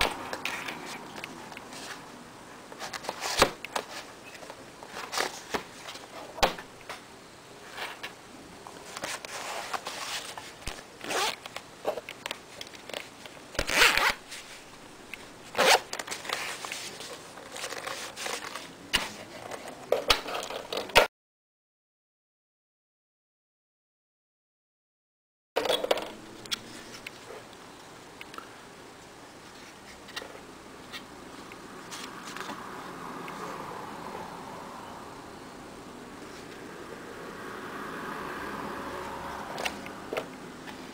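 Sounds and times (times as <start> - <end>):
zips opening and closing: 2.8 - 6.7, 9.0 - 12.0, 13.6 - 19.2.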